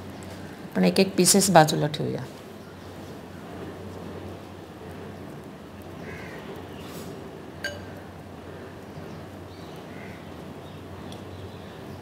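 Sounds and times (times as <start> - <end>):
steady low hum: 0.0 - 12.0
glass bowl clink: 7.6 - 8.0.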